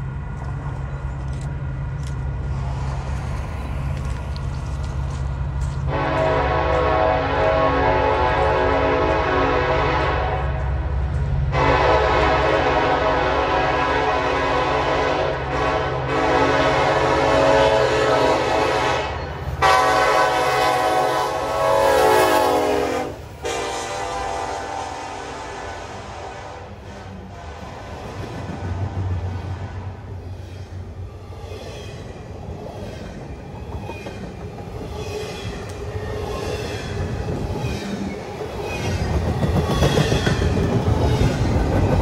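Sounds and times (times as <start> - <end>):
locomotive air horn blasts: 5.9 - 10.7, 11.5 - 27.9.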